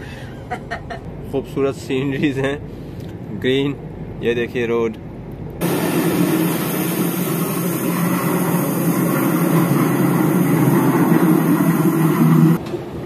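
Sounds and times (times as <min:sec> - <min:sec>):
low motor hum: 0:05.3 - 0:12.6.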